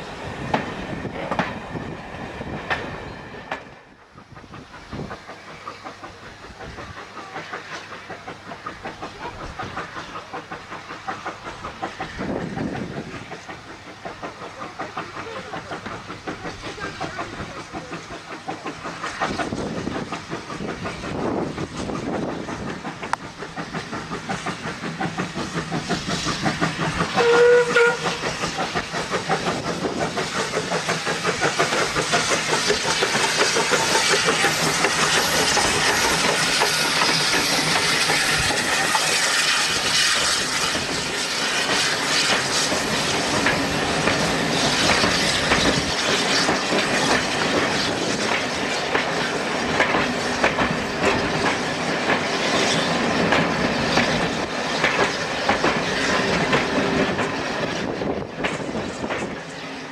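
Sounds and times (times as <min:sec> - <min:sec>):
steam hissing: 0:00.0 - 0:59.9
wheels clacking over rail joints: 0:00.4 - 0:59.9
steam locomotive whistle: 0:27.0 - 0:28.4.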